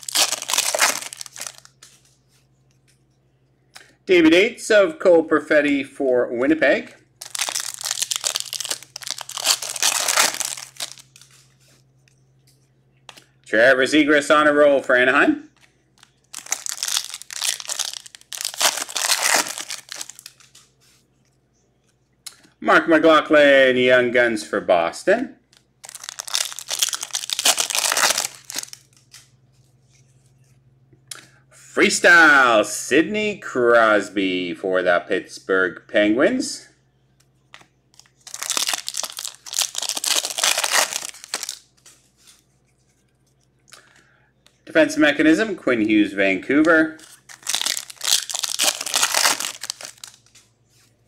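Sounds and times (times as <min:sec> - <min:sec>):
wrapper crinkling and tearing: 0:00.0 - 0:02.0, 0:07.2 - 0:11.4, 0:16.0 - 0:20.7, 0:25.5 - 0:29.3, 0:37.9 - 0:42.4, 0:47.0 - 0:50.4.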